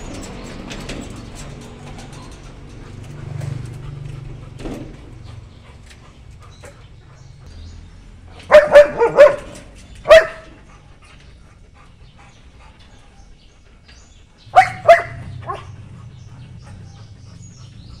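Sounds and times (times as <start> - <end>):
dog barking: 8.4 - 10.6, 14.5 - 15.8.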